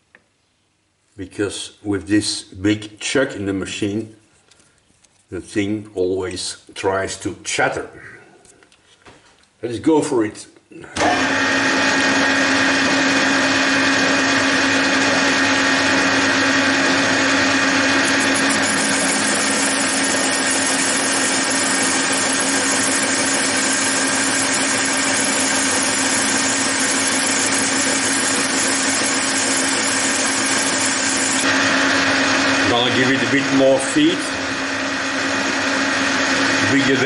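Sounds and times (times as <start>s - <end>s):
metal lathe running: 11.0s - 37.0s.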